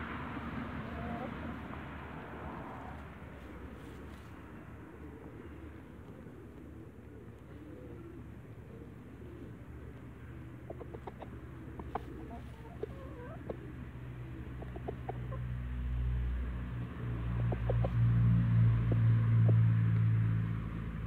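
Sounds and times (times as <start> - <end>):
chickens clucking: 0.8 - 1.6, 2.6 - 15.6, 16.9 - 18.1.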